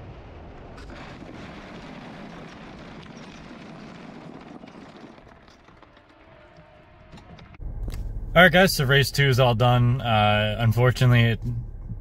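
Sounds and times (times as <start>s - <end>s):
tyres rolling over gravel: 0.8s - 7.6s.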